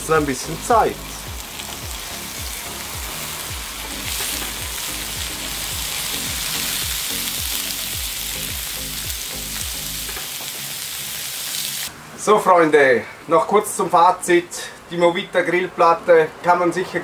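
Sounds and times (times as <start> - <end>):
background music with low beat: 0.0 - 10.6
meat sizzling on a grill plate: 0.1 - 11.9.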